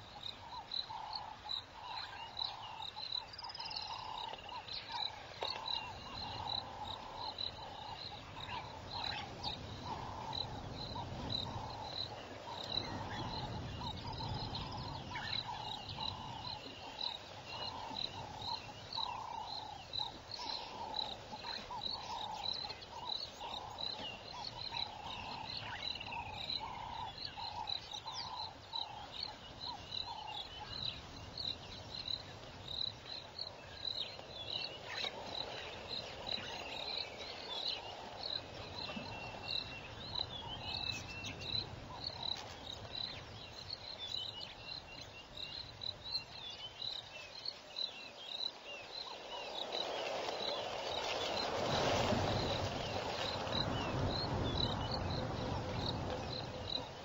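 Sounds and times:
frog calling: 0.0s - 32.2s
insects chirping: 0.0s - 57.0s.

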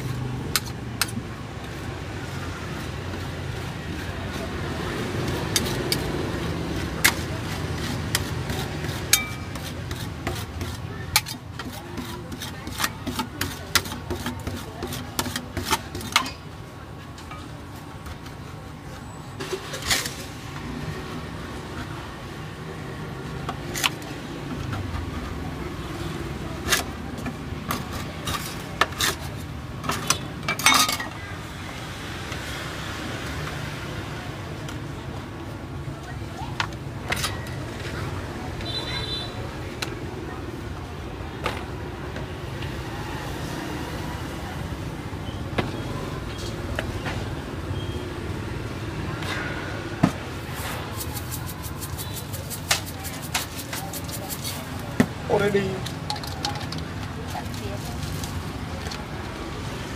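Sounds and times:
metal spatulas tapping on metal: 9.1s - 9.7s.

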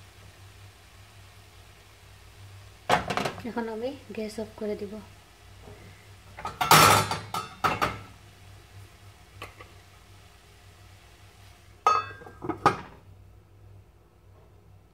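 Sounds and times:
metal pan lid clattering: 6.4s - 8.0s, 11.9s - 13.0s.

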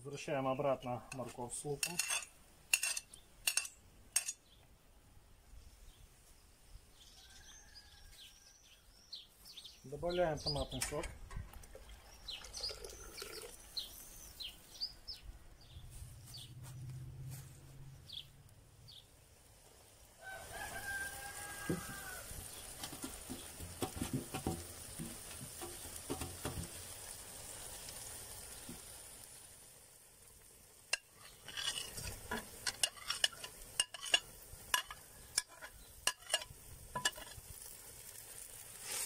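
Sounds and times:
food sizzling in a pot: 1.1s - 4.4s, 19.3s - 39.0s
knocks and scrapes: 1.2s - 4.4s, 21.6s - 26.9s, 31.0s - 37.4s
small birds chirping: 2.8s - 4.8s, 5.5s - 11.1s, 11.8s - 17.0s, 17.8s - 20.0s, 20.9s - 29.1s, 30.4s - 37.6s
rooster crowing: 7.1s - 8.7s, 20.2s - 22.5s.

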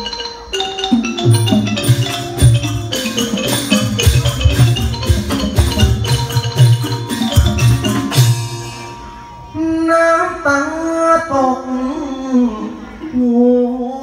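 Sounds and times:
fast struck-note melody: 0.0s - 9.9s
drum beats: 0.8s - 9.2s.

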